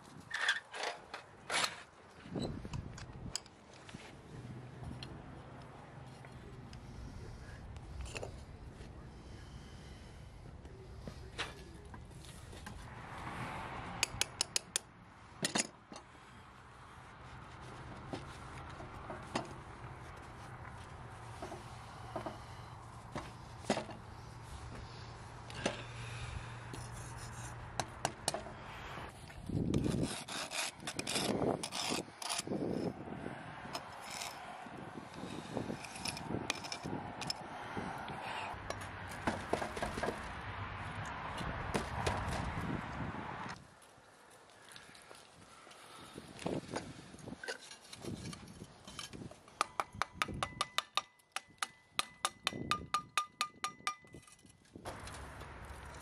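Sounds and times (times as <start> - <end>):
pliers scraping sand: 29.6 - 32.9, 35.1 - 37.4
metal tongs tapping bronze: 49.6 - 54.2.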